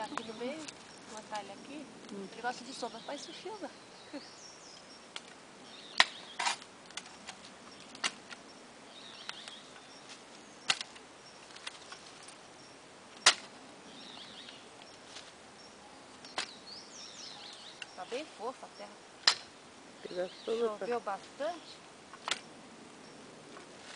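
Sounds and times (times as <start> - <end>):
faint bird chirps: 0.0 - 6.4, 7.1 - 19.0
dry twigs snapping: 4.7 - 8.4, 9.1 - 12.4, 13.1 - 13.6, 16.2 - 16.6, 19.2 - 19.6, 22.1 - 22.5.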